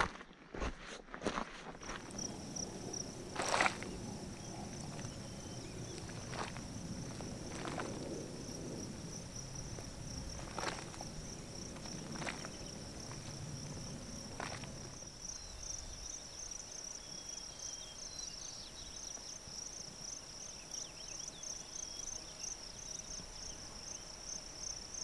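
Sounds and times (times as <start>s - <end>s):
high-pitched insect trill: 1.8s - 25.0s
low even rush: 2.0s - 15.0s.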